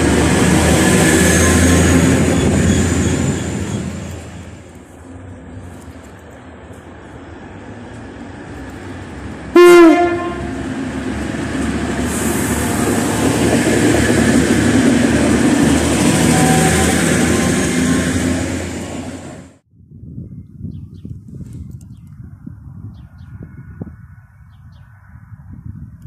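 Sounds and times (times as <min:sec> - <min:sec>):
train running past: 0:00.0 - 0:19.6
train horn blast: 0:09.5 - 0:10.8, 0:16.1 - 0:17.6.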